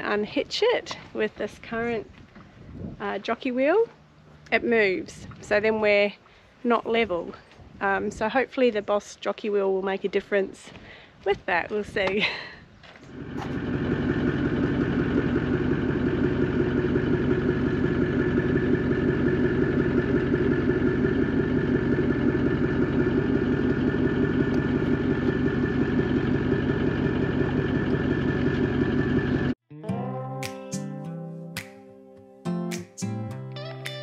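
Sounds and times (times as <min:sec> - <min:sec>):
vehicle engine idling: 0:12.9 - 0:29.6.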